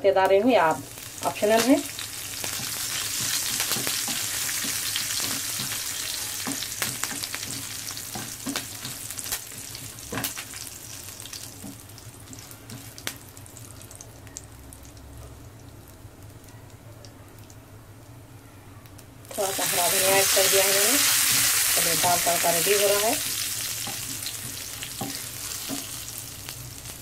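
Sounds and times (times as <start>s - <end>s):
spices sizzling in hot oil: 0.2s - 16.5s, 18.9s - 27.0s.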